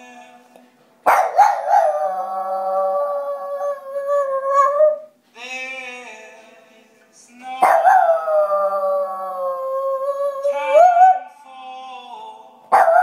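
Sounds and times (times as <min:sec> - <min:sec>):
dog howling: 0:01.1 - 0:05.1, 0:07.6 - 0:11.2, 0:12.7 - 0:13.0.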